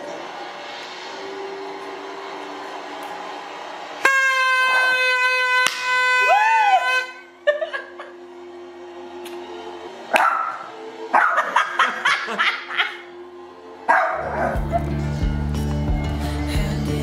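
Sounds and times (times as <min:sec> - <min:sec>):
paper party horns blaring: 0:03.8 - 0:07.4.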